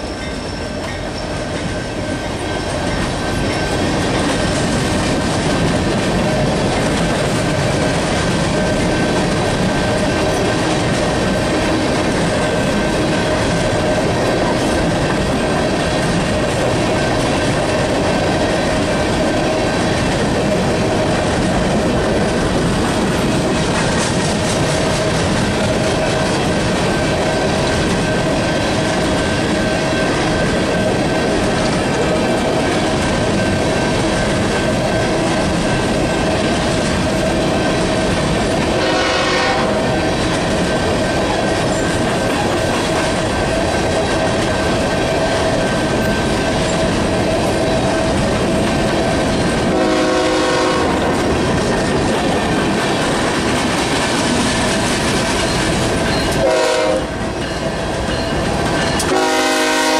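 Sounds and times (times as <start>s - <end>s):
train wheels rumbling on rails: 0.0s - 59.9s
locomotive horn blasts: 38.7s - 39.8s, 49.7s - 51.2s, 56.4s - 57.2s, 59.1s - 59.9s.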